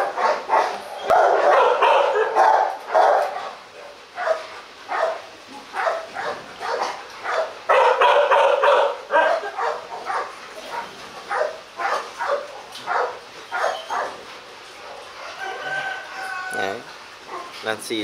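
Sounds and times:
dog barking: 0.0s - 3.6s, 4.2s - 14.2s.

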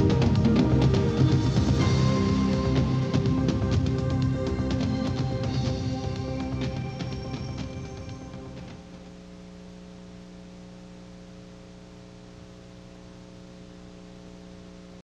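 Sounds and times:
constant hiss: 0.0s - 15.0s
electrical mains hum: 3.4s - 15.0s.

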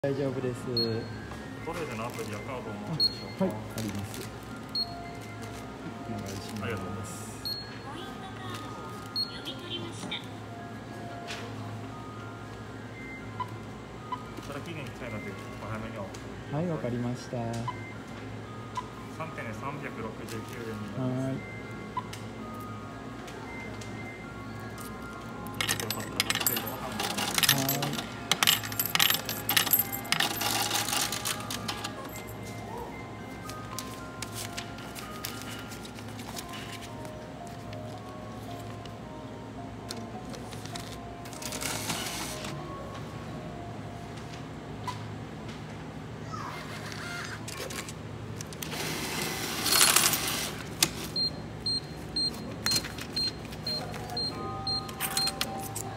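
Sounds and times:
machine beeping: 0.7s - 5.4s, 17.6s - 22.8s, 51.1s - 55.9s
coins clinking into machine slot: 24.7s - 32.5s, 39.9s - 42.6s, 47.4s - 51.2s, 52.6s - 55.9s
coins clattering into tray: 25.6s - 32.3s, 49.1s - 50.6s.

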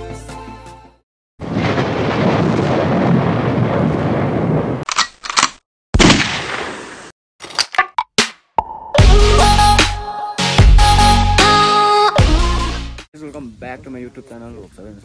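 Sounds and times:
sharp stabs: 5.1s - 8.4s.

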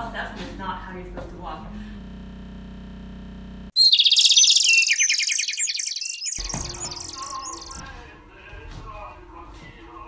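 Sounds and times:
bird chirp sound effect: 3.8s - 7.8s.

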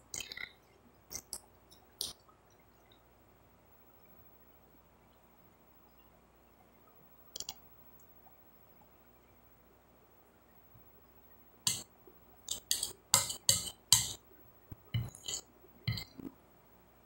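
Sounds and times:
spoon clinking on glass plate: 12.5s - 14.2s, 15.0s - 16.2s.

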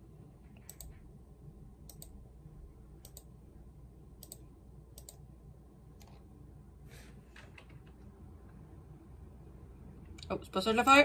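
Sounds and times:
computer mouse clicking: 0.6s - 1.0s, 1.8s - 2.2s, 3.0s - 3.3s, 4.2s - 5.2s.

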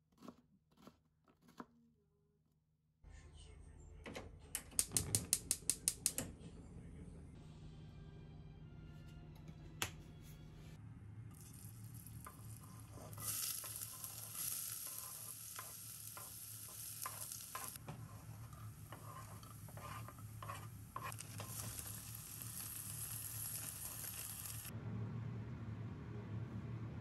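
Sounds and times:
food sizzling in a frying pan: 11.4s - 24.7s
utensil scraping a pan: 12.2s - 24.6s.

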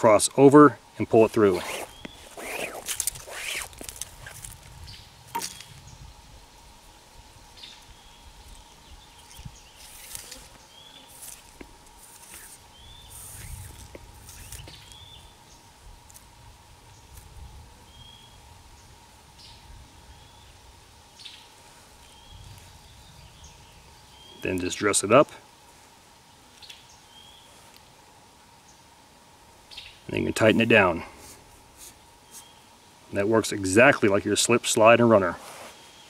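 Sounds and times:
rustling of cord and leaves: 0.6s - 28.6s, 29.3s - 36.0s
bird chirping: 1.6s - 3.6s, 7.5s - 11.3s, 12.2s - 15.7s.

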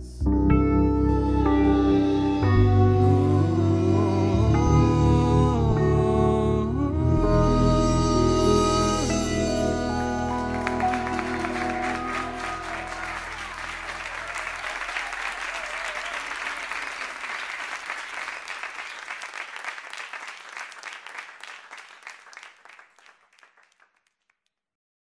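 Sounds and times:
audience applauding: 10.3s - 24.2s.

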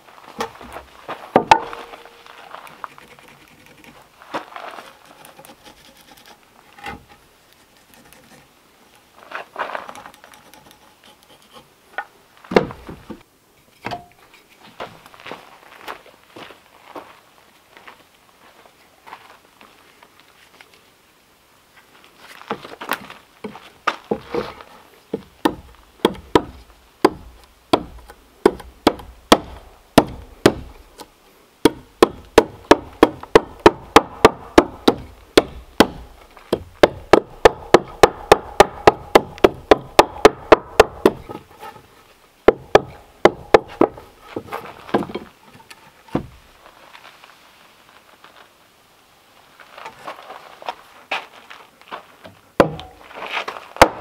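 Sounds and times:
tool striking wood: 1.4s - 2.0s, 12.5s - 13.2s, 13.8s - 14.1s, 25.1s - 41.5s, 42.5s - 45.3s, 46.1s - 46.4s, 52.6s - 53.0s, 53.8s - 54.0s.

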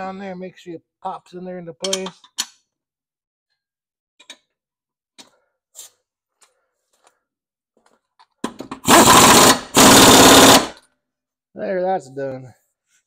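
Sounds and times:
air impact wrench hammering: 8.6s - 10.8s.

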